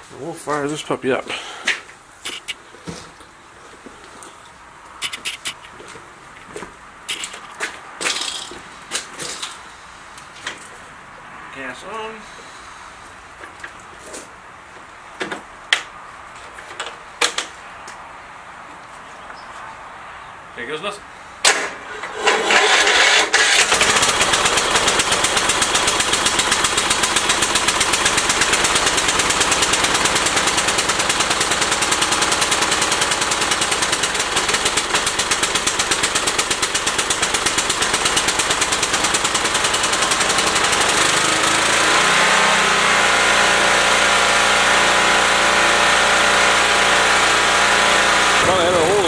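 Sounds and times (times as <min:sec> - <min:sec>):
lawn mower engine running: 0:21.5 - 0:49.0.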